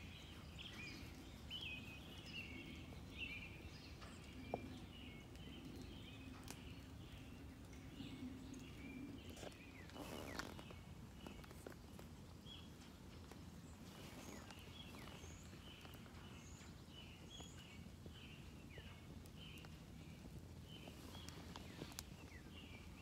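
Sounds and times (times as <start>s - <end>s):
small birds chirping: 0.0s - 23.0s
brief rustle: 9.3s - 11.6s.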